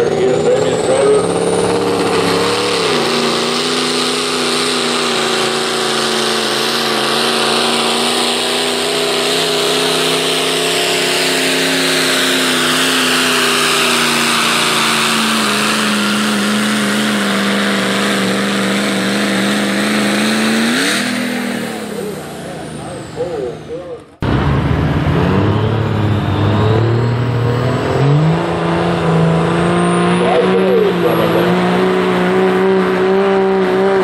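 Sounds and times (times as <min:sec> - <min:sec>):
diesel engine at full throttle: 0:00.0 - 0:34.0
high engine whine: 0:00.0 - 0:34.0.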